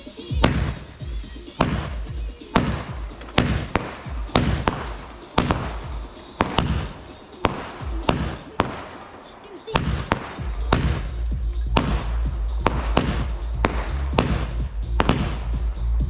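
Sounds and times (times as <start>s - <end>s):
firework bangs with echo: 0.0s - 15.8s.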